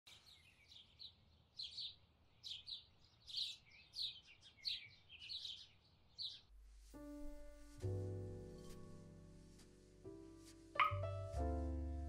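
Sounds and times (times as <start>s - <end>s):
small songbirds chirping: 0.1s - 6.5s.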